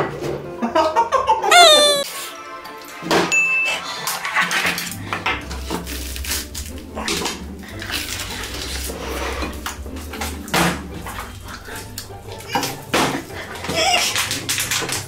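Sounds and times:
crunching and chewing fried chicken: 4.5 - 15.0.

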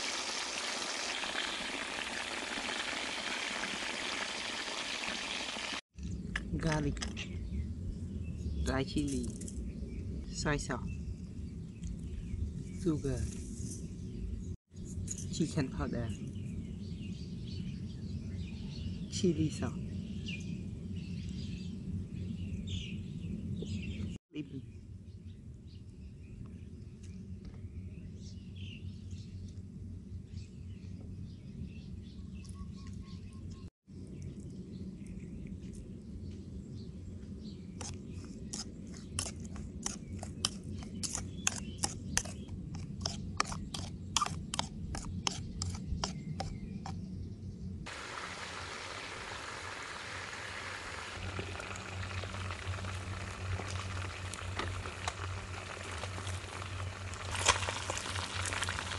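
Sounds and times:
chicken sizzling in hot oil: 0.0 - 5.8, 47.9 - 58.9.

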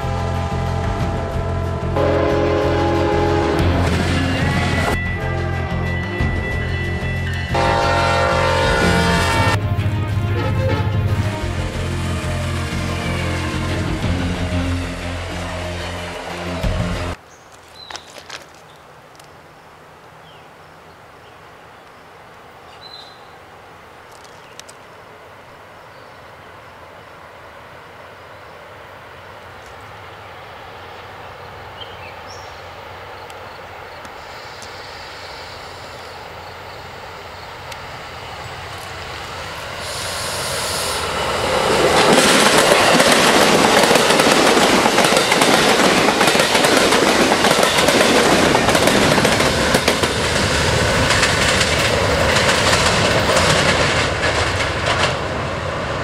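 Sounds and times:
passenger train passing: 0.0 - 17.2, 23.2 - 56.0
wheels clicking on rails: 41.0 - 55.5.

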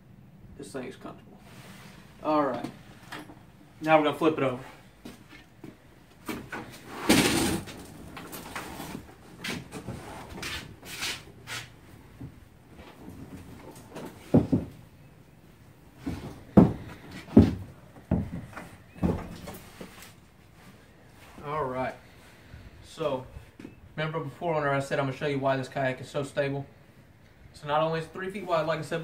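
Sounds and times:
kayak scraping on floor: 6.4 - 11.8
knocks and thumps from hull: 16.1 - 19.6.

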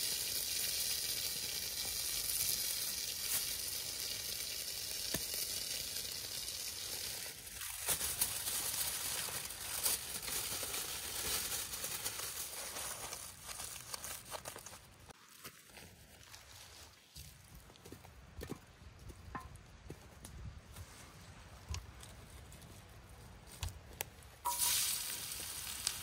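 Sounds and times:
frying pan sizzling: 0.0 - 7.8, 24.4 - 26.0
aluminium foil crinkling: 5.0 - 16.3, 24.5 - 26.0.

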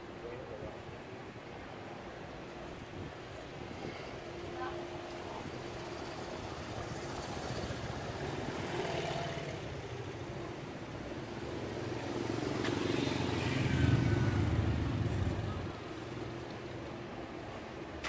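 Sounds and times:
motor scooters riding past: 5.4 - 10.3, 11.3 - 16.4.

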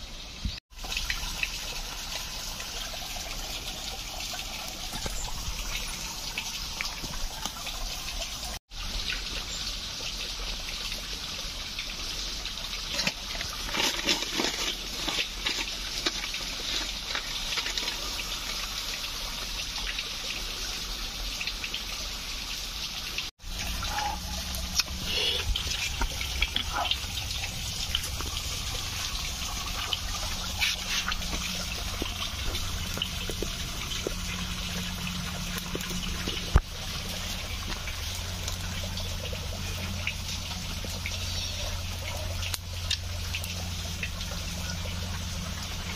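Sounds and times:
campfire clicks and crackles: 12.6 - 20.1, 24.4 - 45.9.

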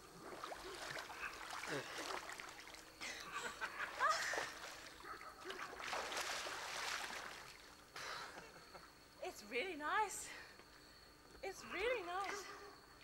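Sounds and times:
water splashing from swimmer: 0.0 - 3.0, 3.9 - 7.8.

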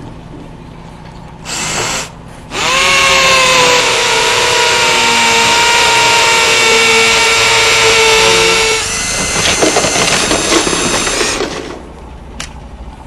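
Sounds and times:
power drill whining: 1.5 - 11.8.

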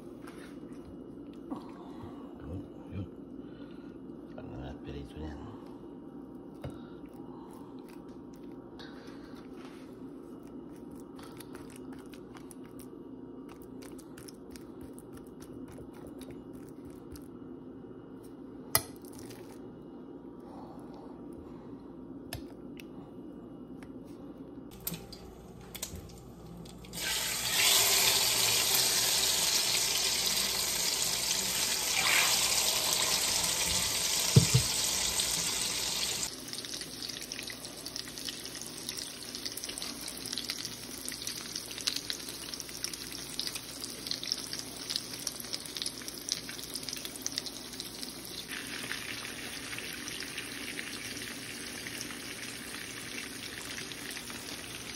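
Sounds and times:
frying in oil sizzling: 26.9 - 54.9
tap running into sink: 33.6 - 35.0.

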